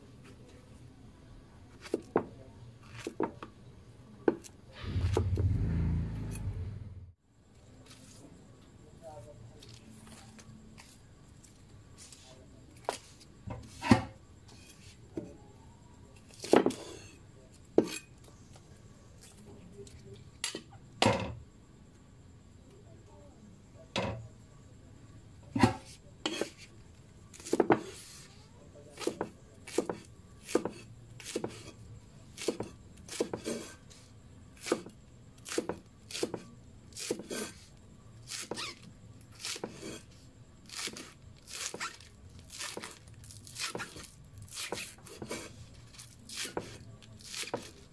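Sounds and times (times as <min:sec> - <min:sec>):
knife chopping on wooden board: 0:16.3 - 0:17.0, 0:27.4 - 0:28.0, 0:29.0 - 0:31.7, 0:32.4 - 0:33.8, 0:34.6 - 0:37.6, 0:39.4 - 0:40.0, 0:46.4 - 0:47.8.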